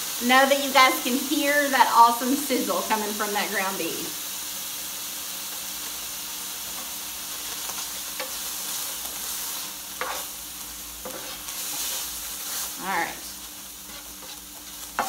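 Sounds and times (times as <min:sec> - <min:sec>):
meat sizzling in skillet: 0:00.0 - 0:15.0
spoon scraping pan: 0:07.5 - 0:10.4, 0:11.0 - 0:12.9, 0:13.7 - 0:15.0.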